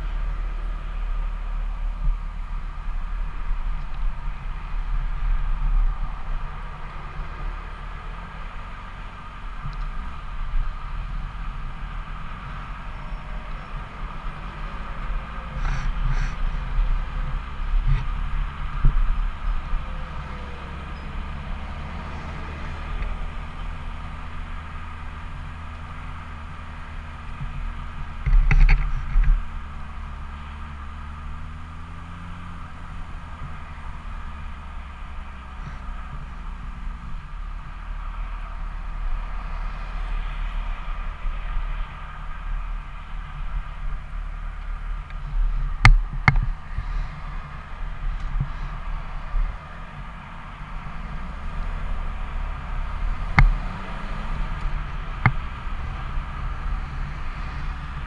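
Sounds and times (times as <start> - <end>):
motorcycle engine running: 40.2 - 58.0.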